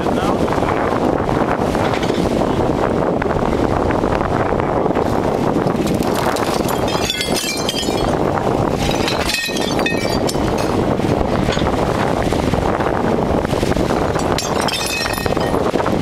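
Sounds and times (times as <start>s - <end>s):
brick clinking and cracking: 5.8s - 8.2s, 8.8s - 10.8s, 14.2s - 15.6s.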